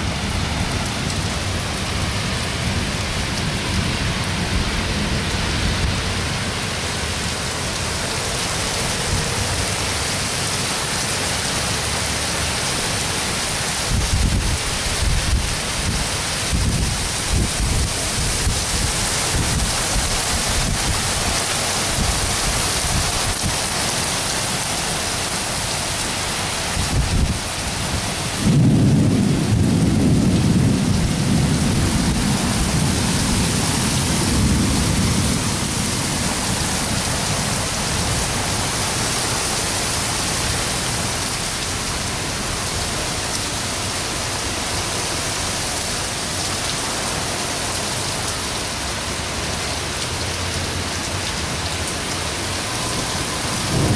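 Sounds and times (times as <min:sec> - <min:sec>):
heavy rain pouring: 0:00.0 - 0:53.9
thunder rumbling: 0:26.7 - 0:39.8, 0:52.7 - 0:53.9.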